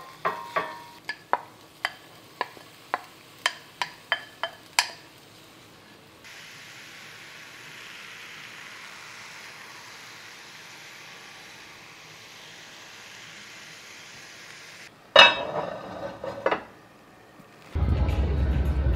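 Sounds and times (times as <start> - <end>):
wooden spatula tapping pan: 0.0 - 5.0
cabbage sizzling in skillet: 0.0 - 16.8.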